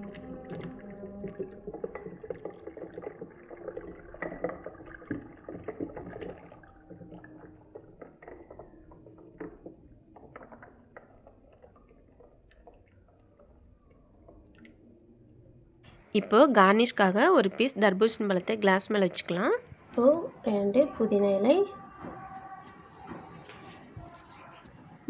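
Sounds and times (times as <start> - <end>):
juice pouring over ice: 0.0 - 14.4.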